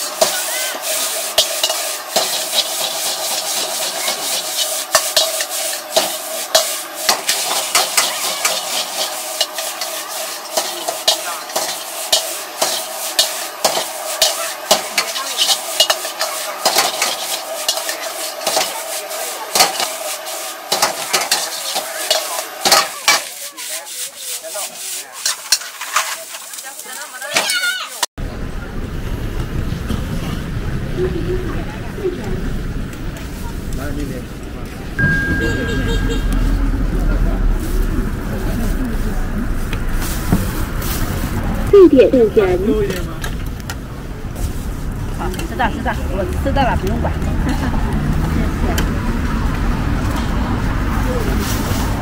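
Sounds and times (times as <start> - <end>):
metal ladle scraping wok: 0.0 - 28.1, 35.0 - 38.7
rice sizzling: 0.0 - 28.1, 32.4 - 52.0.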